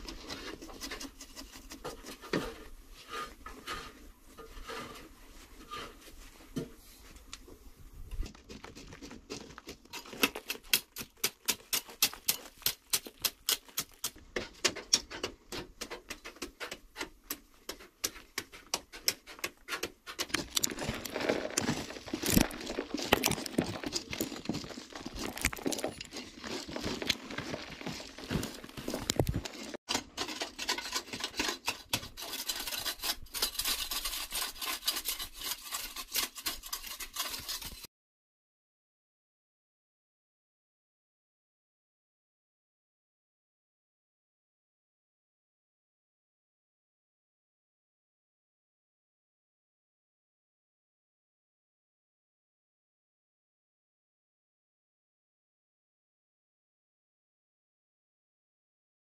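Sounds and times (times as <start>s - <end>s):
digging tool chopping clay earth: 8.4s - 32.5s
loose soil falling: 20.2s - 29.8s.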